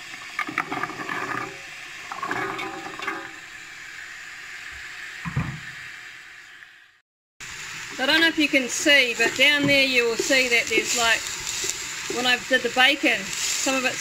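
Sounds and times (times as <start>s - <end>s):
vegetables sizzling in hot oil: 1.4s - 14.0s
clatter and scraping of vegetables: 9.2s - 12.4s.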